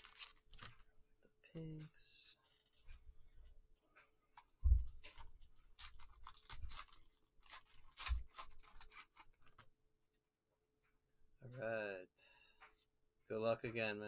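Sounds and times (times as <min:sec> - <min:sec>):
foil wrappers crinkling and tearing: 0:00.0 - 0:00.8, 0:05.0 - 0:09.7.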